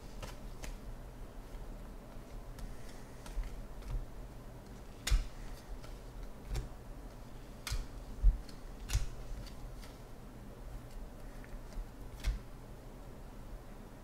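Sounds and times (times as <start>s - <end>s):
cards snapping clicks: 5.0s - 6.7s, 7.6s - 10.0s.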